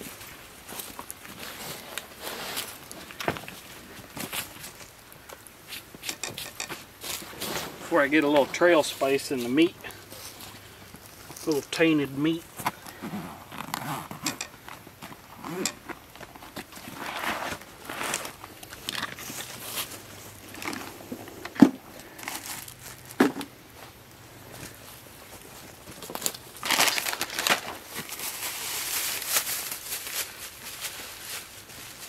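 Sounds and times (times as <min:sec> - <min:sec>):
plastic bag crinkling: 0:22.0 - 0:23.2, 0:25.4 - 0:32.0.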